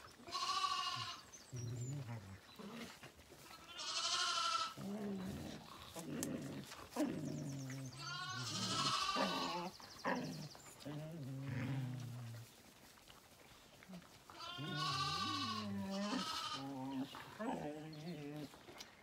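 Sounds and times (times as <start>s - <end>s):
lambs bleating: 0.2s - 1.3s, 3.4s - 4.9s, 7.9s - 9.7s, 14.3s - 17.1s.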